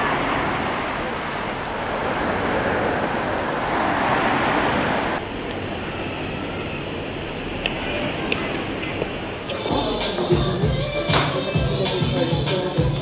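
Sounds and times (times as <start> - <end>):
surf washing onto beach: 0.0 - 5.2
wind on microphone: 0.0 - 5.2.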